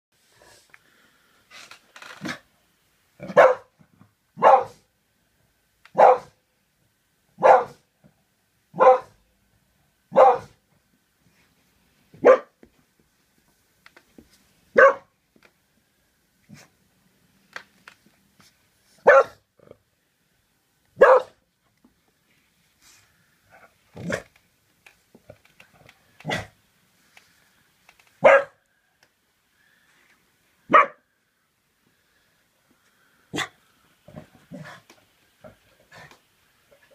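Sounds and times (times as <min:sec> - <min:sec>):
dog barking: 0:03.2 - 0:03.7, 0:04.4 - 0:04.8, 0:05.9 - 0:06.4, 0:07.4 - 0:07.9, 0:08.8 - 0:09.2, 0:10.1 - 0:10.6, 0:12.2 - 0:12.6, 0:14.8 - 0:15.1, 0:19.0 - 0:19.4, 0:21.0 - 0:21.4, 0:28.2 - 0:28.6, 0:30.7 - 0:31.1, 0:33.3 - 0:33.6.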